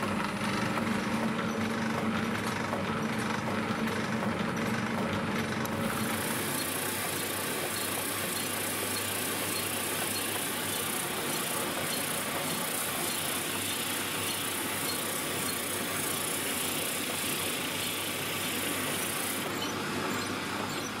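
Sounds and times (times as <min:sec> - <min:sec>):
drill motor hum: 0:05.6 - 0:21.0.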